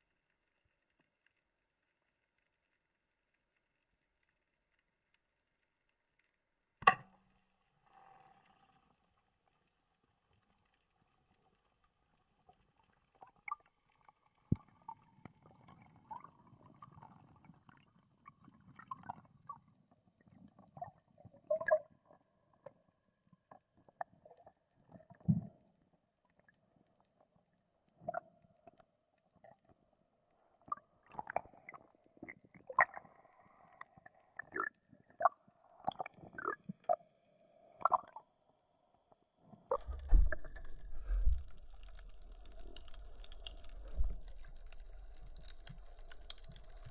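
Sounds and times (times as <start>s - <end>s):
muffled underwater knocks and thumps: 39.7s - 41.8s
water gurgling: 39.7s - 46.9s
low rumble: 39.8s - 46.9s.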